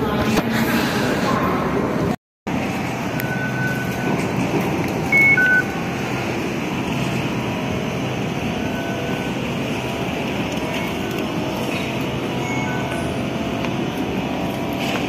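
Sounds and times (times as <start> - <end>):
vehicle hum and rumble: 0.0 - 15.0
electronic two-note beep: 5.1 - 5.7.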